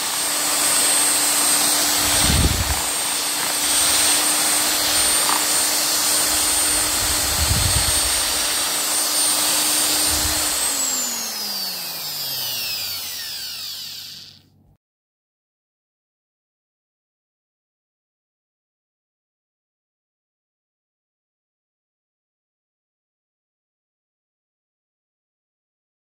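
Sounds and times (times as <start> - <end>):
electric whisk motor whining: 0.0 - 14.6.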